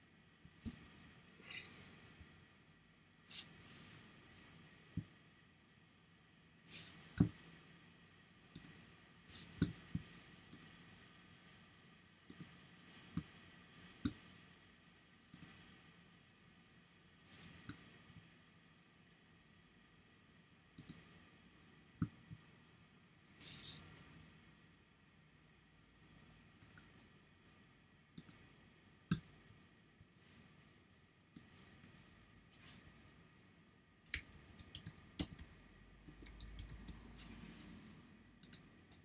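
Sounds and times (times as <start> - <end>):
computer mouse clicks: 0.6 - 1.2, 8.4 - 8.8, 9.4 - 10.8, 12.3 - 13.3, 15.3 - 15.6, 20.8 - 21.1, 28.2 - 28.5, 31.4 - 32.0, 34.0 - 37.8, 38.4 - 38.7.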